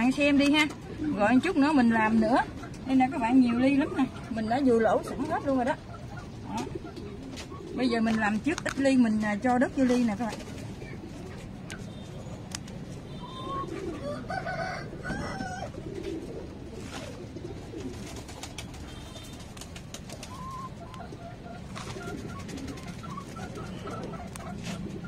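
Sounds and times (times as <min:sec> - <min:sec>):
chickens calling: 0:00.0 - 0:25.0
pigeons cooing: 0:00.0 - 0:25.0.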